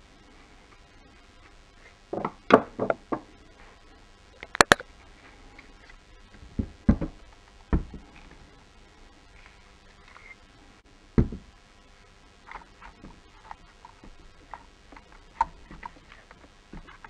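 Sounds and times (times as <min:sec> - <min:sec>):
plastic parts knocking on wood table: 0:02.1 - 0:03.3, 0:11.2 - 0:11.5.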